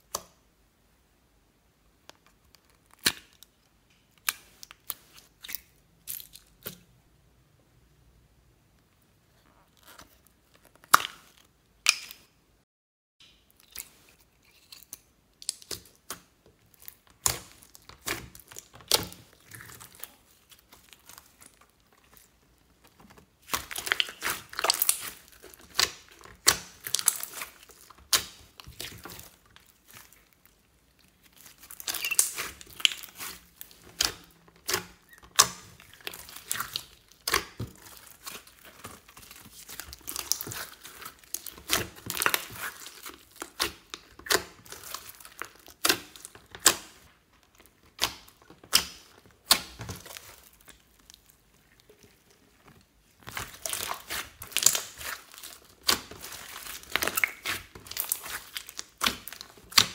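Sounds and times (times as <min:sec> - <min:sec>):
slime squelching and popping: 0:02.4 - 0:06.9, 0:09.7 - 0:12.3, 0:13.2 - 0:59.9.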